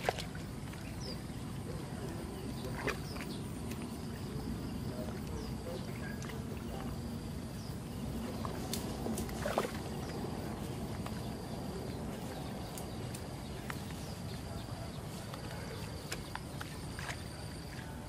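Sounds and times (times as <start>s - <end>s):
wind rumbling on microphone: 0.0s - 18.0s
branches snapping and rustling: 8.6s - 9.9s.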